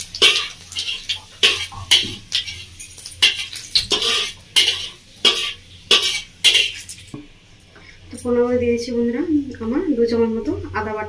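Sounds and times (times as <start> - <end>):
spices frying in oil: 0.0 - 11.0
metal spatula scraping brass pan: 0.1 - 7.0.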